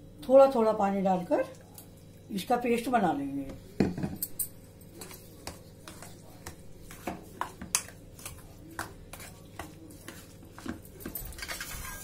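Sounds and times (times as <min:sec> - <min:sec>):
batter being stirred: 0:03.5 - 0:12.0.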